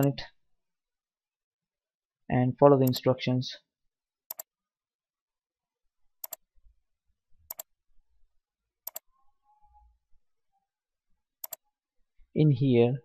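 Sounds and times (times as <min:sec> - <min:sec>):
computer mouse clicks: 0:02.8 - 0:03.0, 0:04.3 - 0:04.5, 0:06.2 - 0:06.4, 0:07.5 - 0:07.7, 0:08.8 - 0:09.1, 0:11.4 - 0:11.6.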